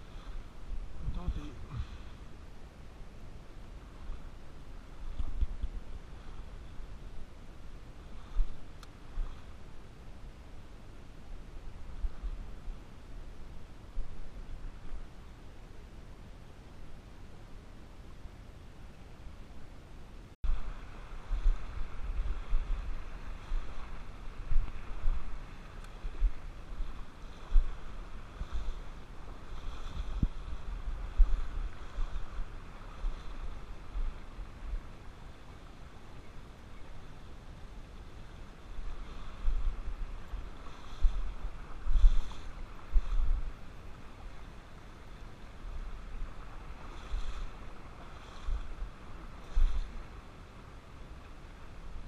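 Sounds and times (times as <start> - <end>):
wind buffeting microphone: 0.0 - 2.4, 20.4 - 35.1, 37.9 - 50.3
river water flowing over gravel: 20.5 - 52.0.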